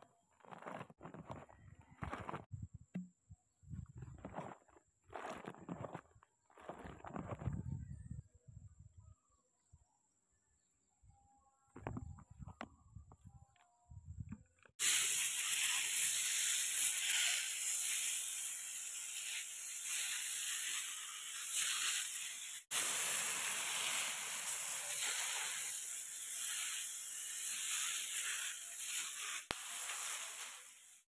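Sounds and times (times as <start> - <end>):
sprayer nozzle hissing: 14.8 - 31.0.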